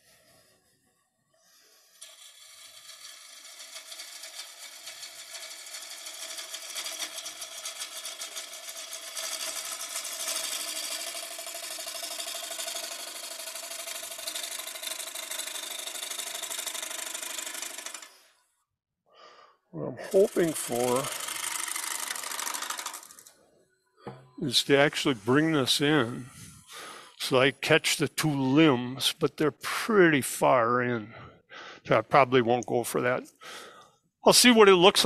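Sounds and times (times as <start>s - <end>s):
wood lathe gouge cutting: 1.9s - 18.2s, 20.1s - 23.3s.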